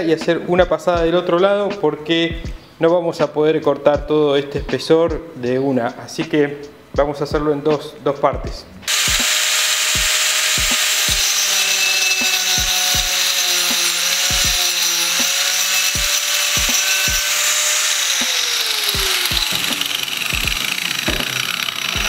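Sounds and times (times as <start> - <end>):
background music with low beat: 0.0 - 22.0
angle grinder cutting wood: 8.8 - 22.0.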